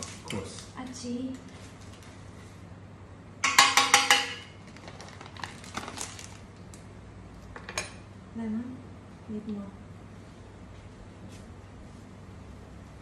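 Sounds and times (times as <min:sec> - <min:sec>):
utensil clinking in metal pot: 0:03.4 - 0:04.5.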